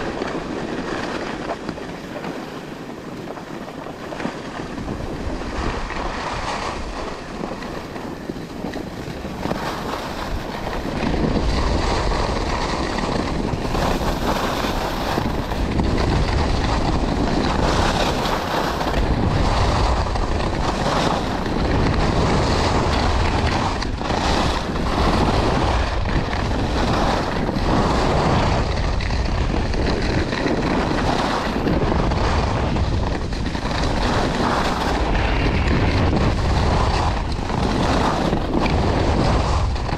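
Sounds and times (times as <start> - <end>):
skis sliding over snow: 0.0 - 39.9
wind buffeting microphone: 0.0 - 39.9.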